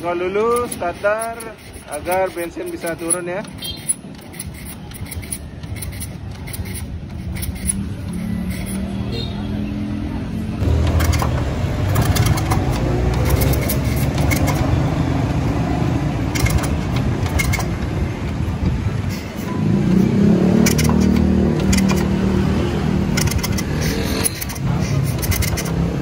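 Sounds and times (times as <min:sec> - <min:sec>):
motorcycle engine starting and running: 0:01.7 - 0:09.4, 0:10.3 - 0:26.0.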